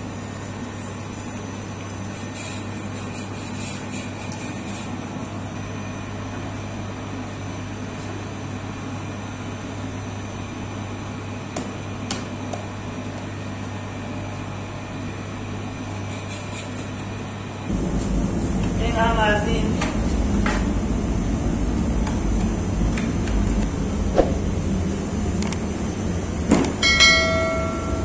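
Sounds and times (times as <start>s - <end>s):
dough mixer humming: 17.7s - 26.5s.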